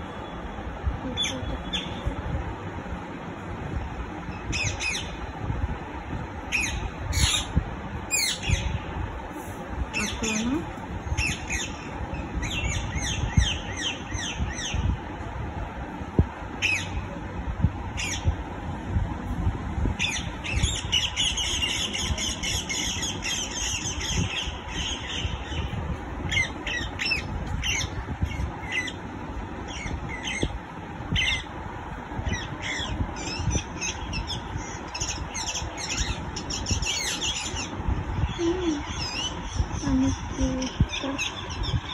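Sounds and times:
low rumbling background noise: 0.0 - 41.9
parrot squawking and chirping: 6.5 - 7.5, 32.3 - 41.9.

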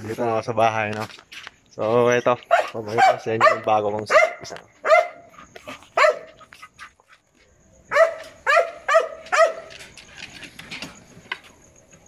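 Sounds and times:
dog barking: 2.5 - 6.4, 7.9 - 9.7.

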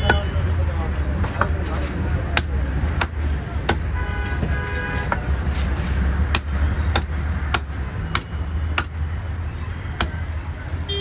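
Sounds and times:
low traffic rumble: 0.0 - 11.0
cleaver chopping on wooden block: 2.2 - 4.5, 6.3 - 9.0
vehicle horn: 3.9 - 5.1.

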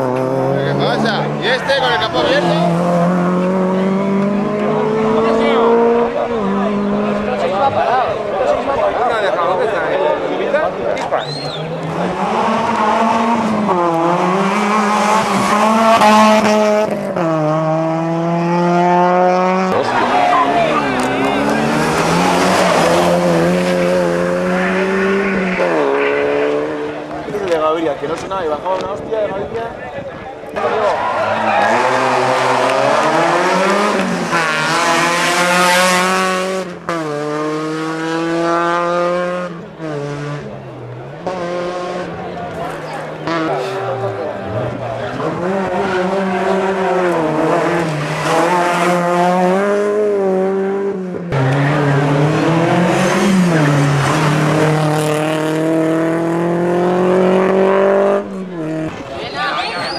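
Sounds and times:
rally car engine revving: 0.0 - 29.6, 30.3 - 59.9.

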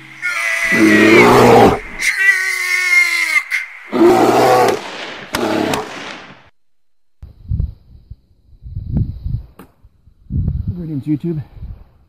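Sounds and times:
bear roaring: 0.2 - 2.1, 3.9 - 5.9
pitched cry falling: 0.2 - 4.8
sharp cracks: 4.4 - 6.6.

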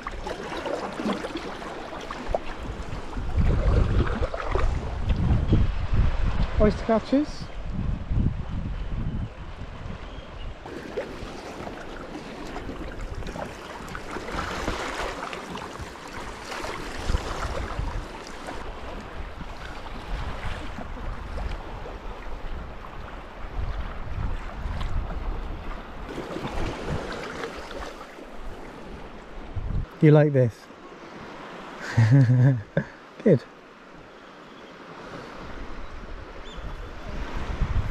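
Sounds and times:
paddle blades splashing: 0.0 - 5.3, 10.6 - 29.5
water slapping against hull: 0.0 - 5.5, 10.6 - 29.1
wind rumble on microphone: 2.3 - 11.4, 15.8 - 27.2, 28.4 - 30.0, 35.4 - 37.9.

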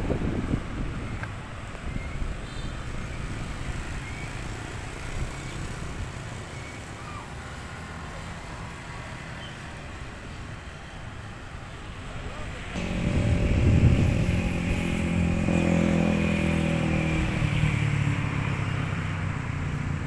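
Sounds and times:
low traffic rumble: 0.0 - 20.0
motorbikes passing: 0.0 - 20.0
car passing: 12.3 - 20.0.

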